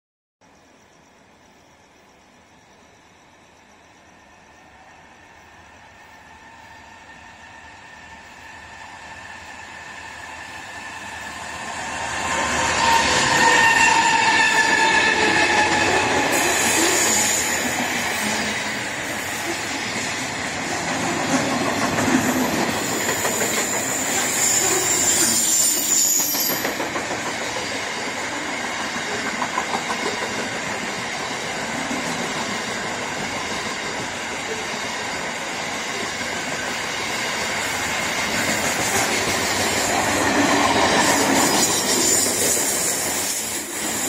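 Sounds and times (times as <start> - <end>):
high squeals: 2.5 - 20.1, 22.1 - 26.8
freight train rumble and rattle: 4.6 - 44.0.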